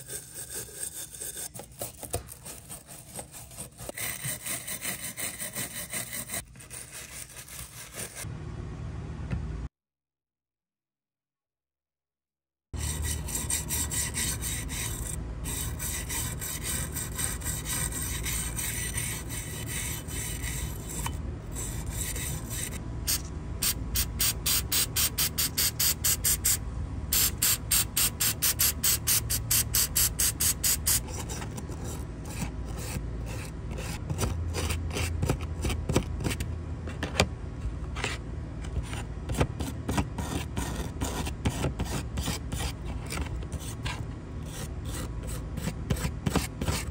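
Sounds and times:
wire brush scrubbing metal: 12.8 - 23.3.

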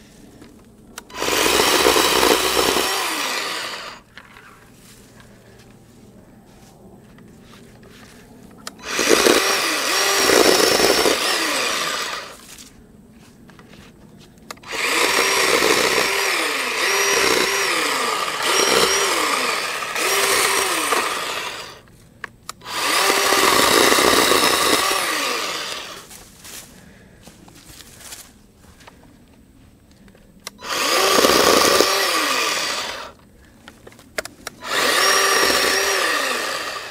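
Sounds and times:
electric chainsaw cutting branches: 0.9 - 4.2, 8.6 - 12.7, 14.5 - 21.9, 22.5 - 26.6, 30.4 - 33.2, 34.2 - 36.9.

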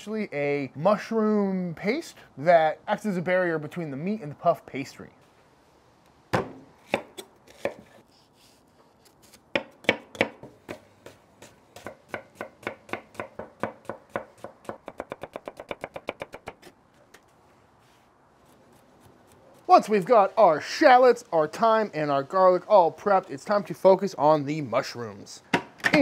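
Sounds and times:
knife chopping on wooden board: 6.4 - 8.0, 9.5 - 16.7.

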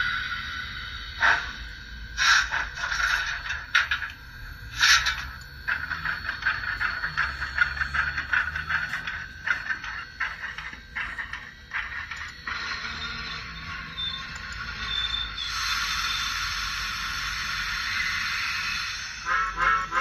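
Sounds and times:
model locomotive motor whirring: 0.0 - 20.0
wheels clicking on rails: 4.8 - 18.3.

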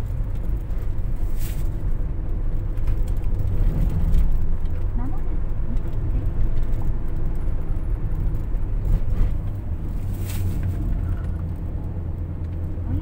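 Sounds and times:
low rumble of engine and tyres: 0.0 - 13.0.

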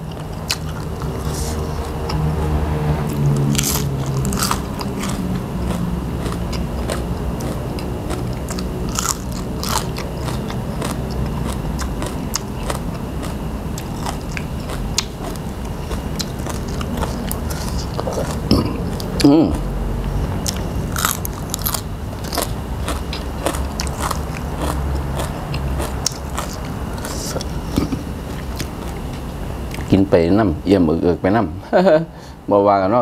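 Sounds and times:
crunchy chewing: 0.0 - 2.4, 3.1 - 29.9
wet mouth sounds: 0.1 - 2.2.

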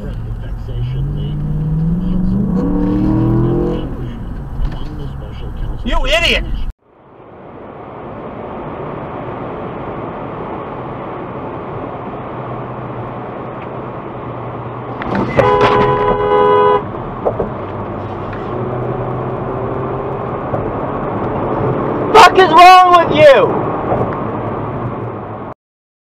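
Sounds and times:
car road and engine noise: 0.0 - 25.6
car horn: 15.1 - 16.9.

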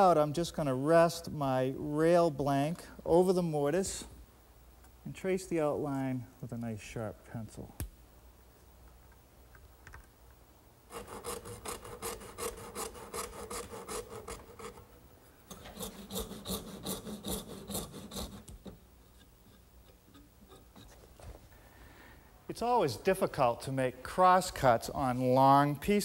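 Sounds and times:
handsaw cutting wood: 10.9 - 14.8, 15.5 - 18.5.

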